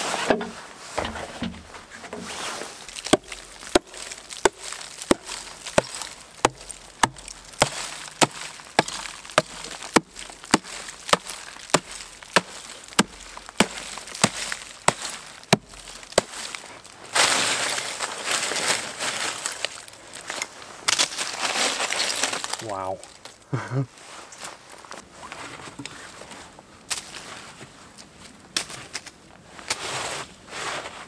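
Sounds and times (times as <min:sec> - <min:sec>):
rough crunching: 0:00.0 - 0:23.4
axe chopping ice: 0:02.9 - 0:16.6.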